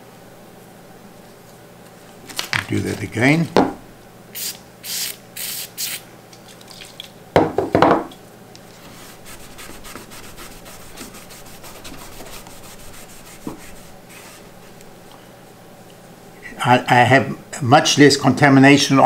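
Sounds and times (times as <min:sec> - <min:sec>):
aerosol can spraying: 0:04.4 - 0:06.0
cotton pad rubbing on metal: 0:09.0 - 0:14.5.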